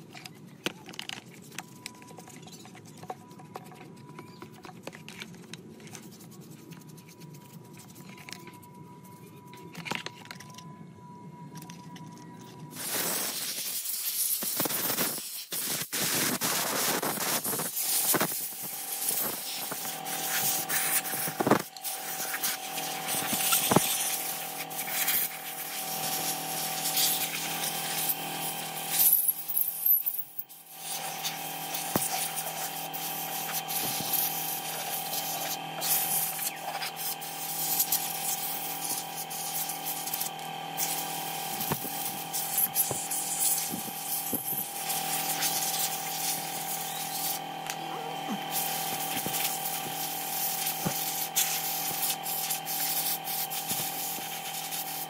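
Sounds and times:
hand tool scraping plastic: 0.1 - 10.6
steady hum: 30.4 - 55.0.

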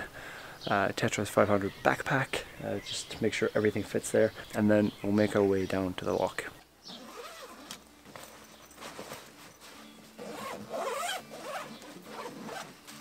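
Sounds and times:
backpack zipper rasping: 6.9 - 7.8, 9.8 - 12.8
rustle of gear being packed: 6.9 - 13.0.

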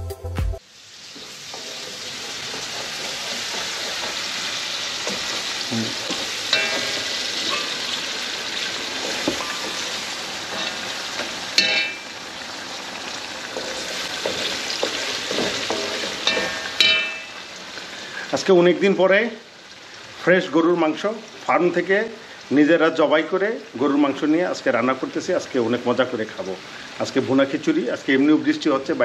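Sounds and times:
onions sizzling in hot oil: 0.6 - 29.0
spatula clinking pot: 1.5 - 12.4, 13.4 - 17.5.

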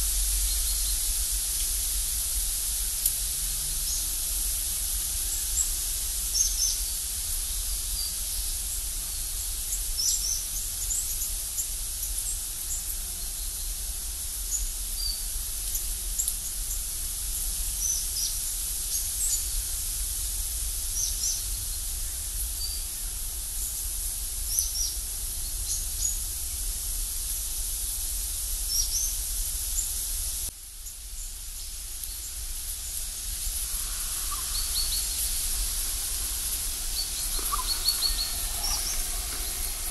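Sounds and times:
steady high hiss: 0.0 - 39.9
faint low rumble: 31.4 - 39.9.

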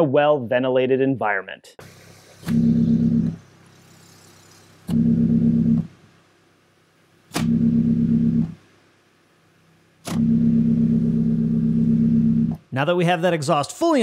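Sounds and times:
faint exhaust hiss: 1.8 - 10.2, 12.4 - 14.0.

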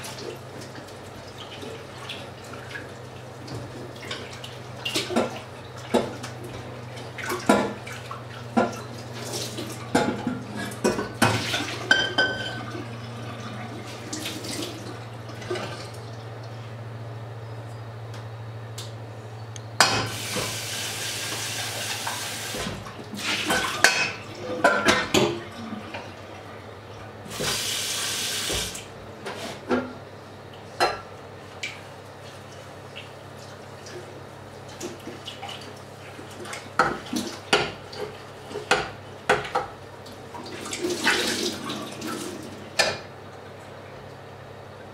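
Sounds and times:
tap running into sink: 28.3 - 28.8.

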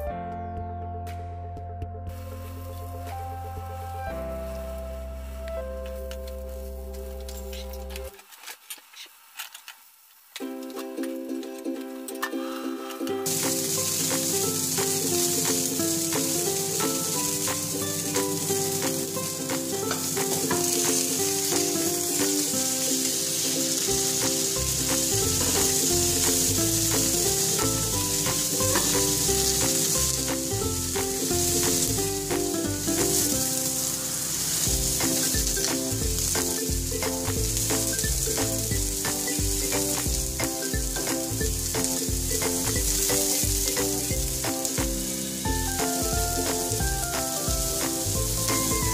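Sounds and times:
background music: 0.0 - 8.1, 10.4 - 48.9
fish sizzling in a frying pan: 13.2 - 48.9.

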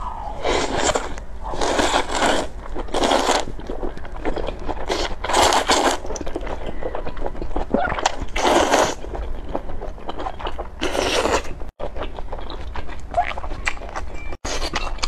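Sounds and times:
noodles slurped: 0.4 - 11.6
chewing and mouth clicks: 0.7 - 15.0.

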